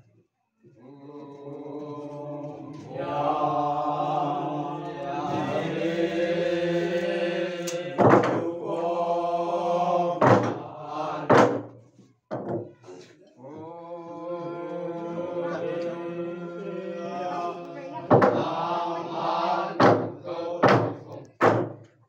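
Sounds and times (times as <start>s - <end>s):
men chanting: 0.7s - 11.6s, 12.8s - 21.5s
log drum strikes: 8.0s - 8.5s, 10.2s - 10.6s, 11.3s - 12.6s, 19.8s - 21.8s.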